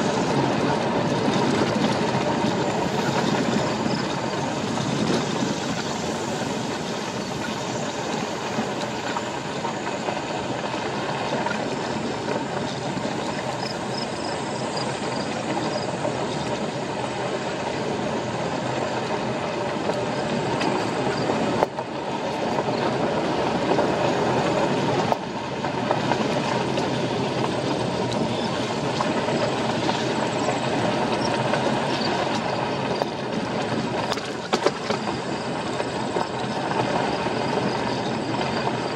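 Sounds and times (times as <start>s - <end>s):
tyres rolling on gravel road: 0.0s - 38.9s.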